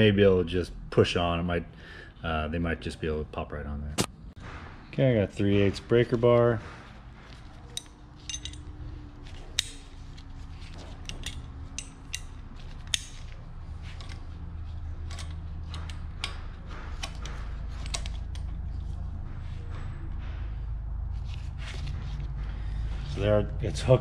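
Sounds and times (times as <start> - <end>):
steady low hum: 0.0 - 24.0
metal-on-metal clicks and clinks: 7.7 - 8.8, 10.8 - 13.4, 15.0 - 16.4, 17.0 - 18.5.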